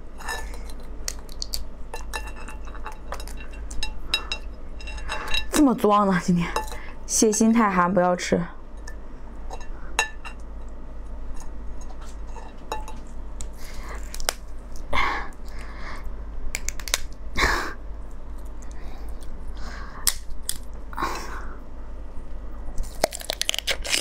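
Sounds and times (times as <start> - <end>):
crab shell cracking: 0.6 - 1.8, 13.4 - 15.7, 16.5 - 17.2, 20.0 - 20.8, 22.8 - 24.0.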